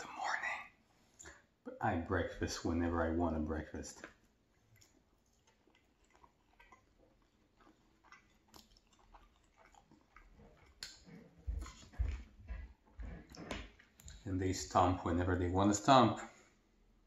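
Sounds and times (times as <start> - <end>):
faint chewing: 3.8 - 14.3
wet mouth clicks: 4.0 - 11.9.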